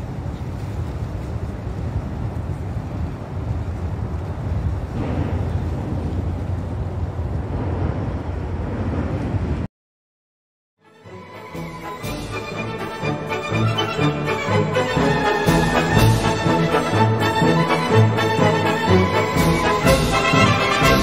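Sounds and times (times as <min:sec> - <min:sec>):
wind buffeting microphone: 0:00.0 - 0:09.7.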